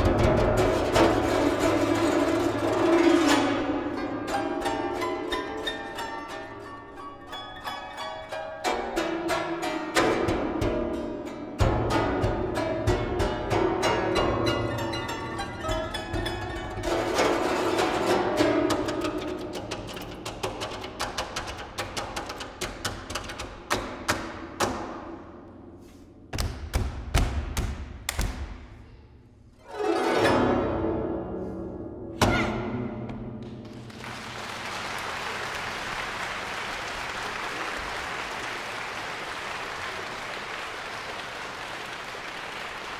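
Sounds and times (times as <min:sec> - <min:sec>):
guzheng piece: 0:00.0 - 0:26.2, 0:28.8 - 0:33.4
audience applauding: 0:33.7 - 0:42.9.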